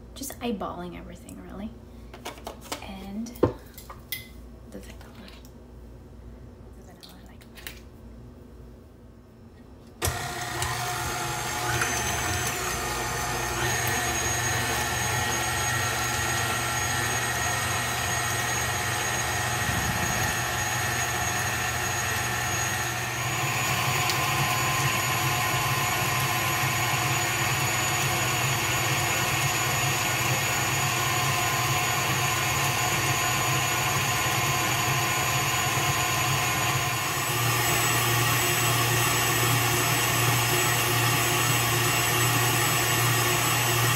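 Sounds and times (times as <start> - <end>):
stand mixer motor whine: 10.0 - 43.9.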